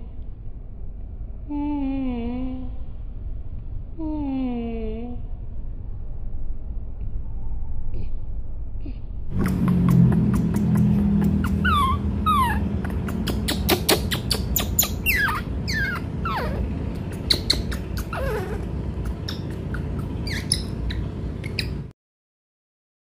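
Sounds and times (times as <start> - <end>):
baby monkey squealing: 9.4 - 21.9.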